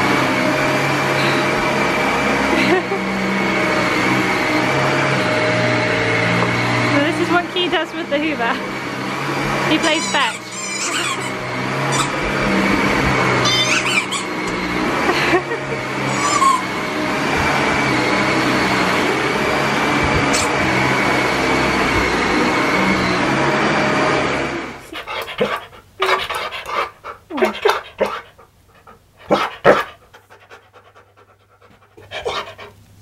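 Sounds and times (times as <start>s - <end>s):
stick vacuum whining: 0.0s - 33.0s
dog yowling vocalisations: 9.9s - 14.5s, 16.1s - 16.8s, 24.9s - 28.5s.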